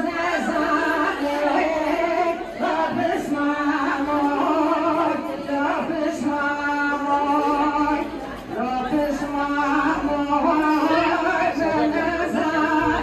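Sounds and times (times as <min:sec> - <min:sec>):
women singing folk song: 0:00.0 - 0:13.0.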